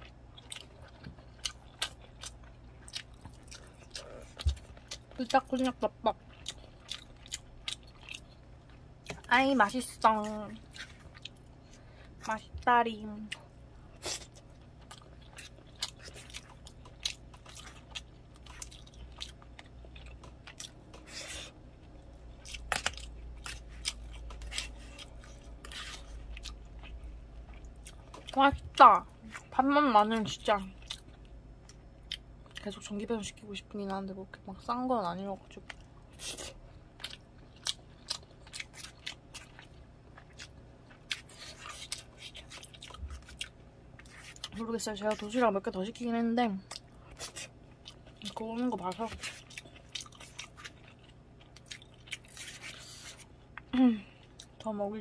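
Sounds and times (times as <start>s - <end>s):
chewing rice: 0.0s - 9.3s, 9.9s - 12.2s, 13.3s - 29.6s, 30.2s - 32.7s, 35.4s - 45.4s, 46.6s - 54.6s.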